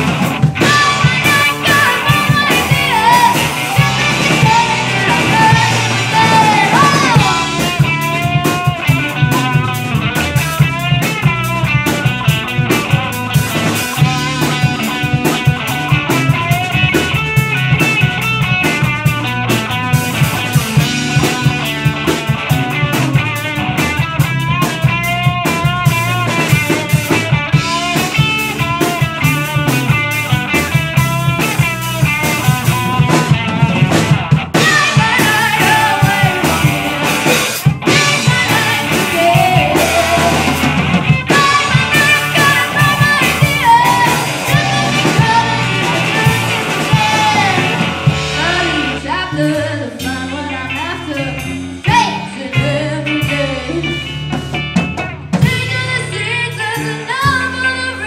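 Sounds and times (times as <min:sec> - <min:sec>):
drum kit: 0:00.0 - 0:58.0
electric guitars: 0:00.0 - 0:58.0
woman singing lead vocal: 0:00.6 - 0:07.9, 0:34.6 - 0:37.2, 0:37.9 - 0:54.2, 0:55.4 - 0:58.0.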